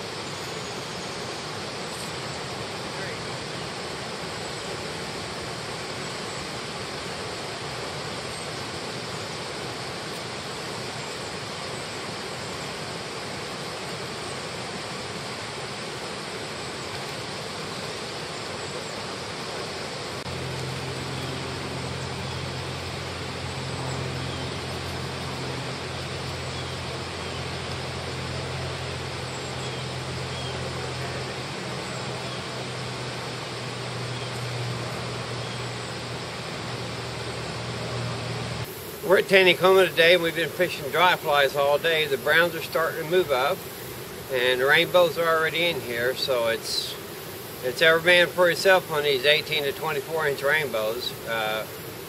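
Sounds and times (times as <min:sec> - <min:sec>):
river water flowing: 0:00.0 - 0:52.0
low motor hum: 0:19.6 - 0:38.7.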